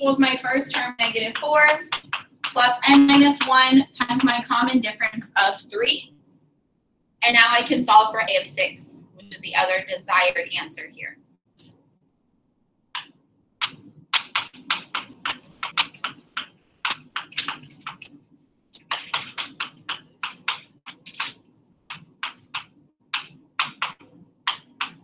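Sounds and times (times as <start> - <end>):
low steady hum: 0.0 - 25.0
marker writing on a board: 0.7 - 4.4, 13.0 - 25.0.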